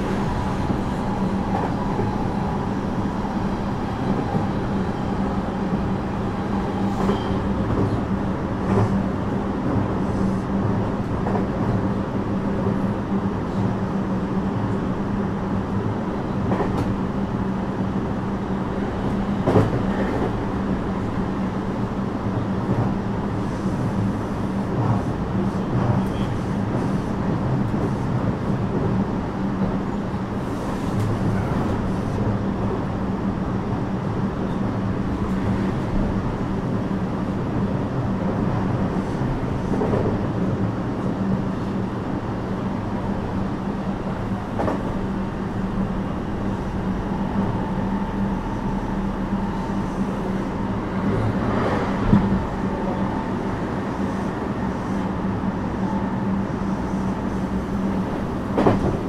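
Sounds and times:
train running rumble: 0:00.0 - 0:59.0.

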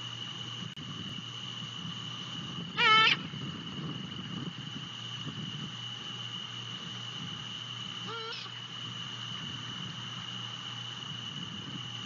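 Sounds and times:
high insect trill: 0:00.0 - 0:12.0
owl quavering calls: 0:02.7 - 0:03.3, 0:08.0 - 0:08.6.

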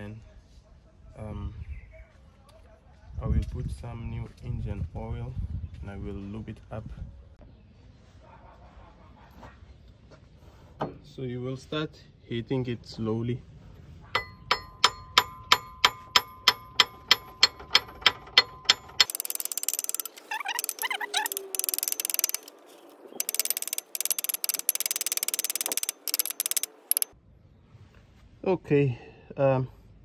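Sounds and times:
hammer striking metal: 0:14.2 - 0:20.1.

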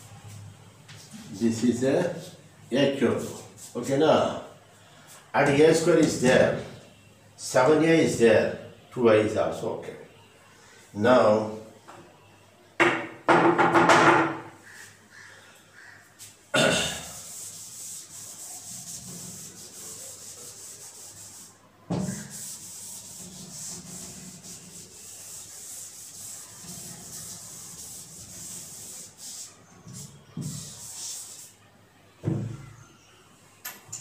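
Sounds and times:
duster rubbing on chalkboard: 0:17.0 - 0:31.6.

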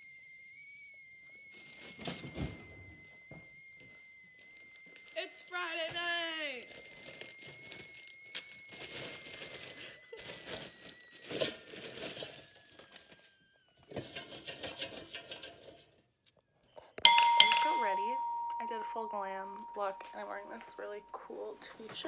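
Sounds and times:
faint high whine: 0:00.0 - 0:09.3, 0:17.0 - 0:22.0.

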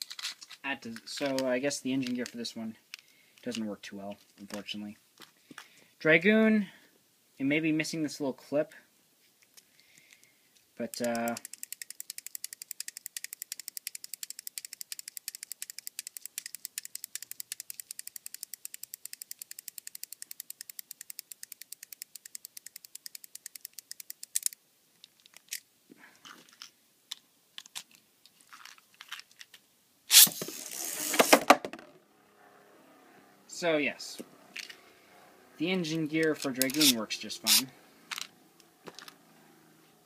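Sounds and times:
spinning top clattering in stadium: 0:10.9 - 0:24.5, 0:30.1 - 0:31.9
ratchet clicking: 0:10.9 - 0:24.6.

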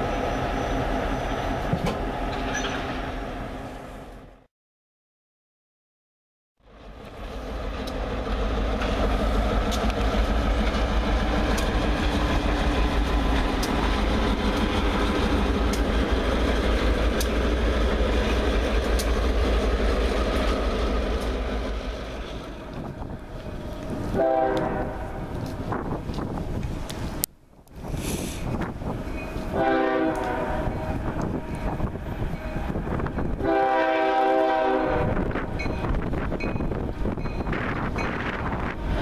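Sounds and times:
diesel locomotives rumbling past: 0:00.0 - 0:04.5, 0:06.6 - 0:39.0
train wheels clicking on rails: 0:07.0 - 0:24.7.

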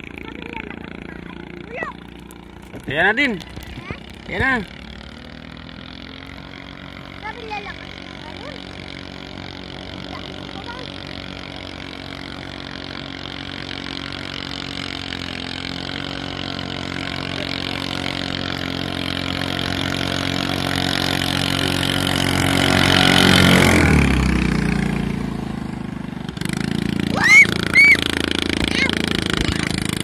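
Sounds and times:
racing boat engine passing: 0:00.0 - 0:30.0.

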